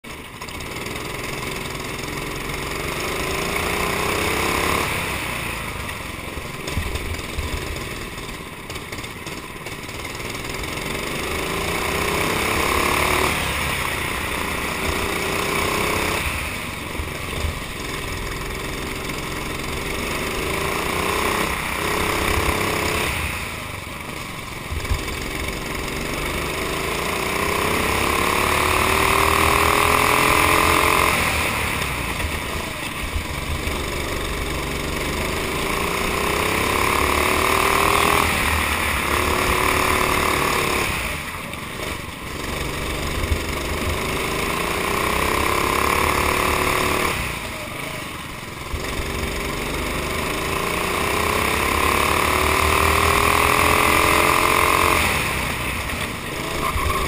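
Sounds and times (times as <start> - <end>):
kart engine revving: 0.1 - 57.0.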